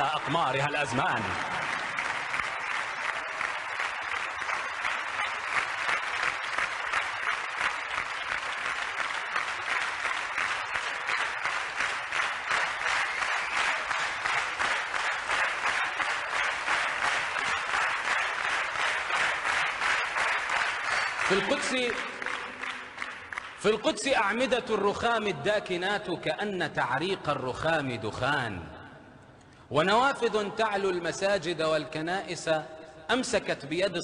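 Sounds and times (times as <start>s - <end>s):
audience applause: 0.0s - 23.8s.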